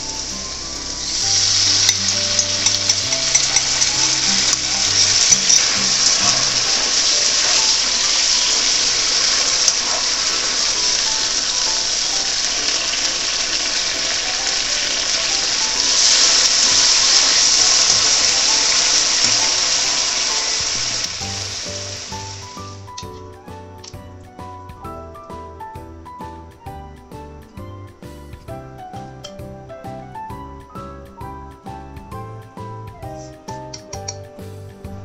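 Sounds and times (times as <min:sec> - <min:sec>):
sauce sizzling in frying pan: 0:00.0 - 0:23.2
light background music: 0:00.0 - 0:35.0.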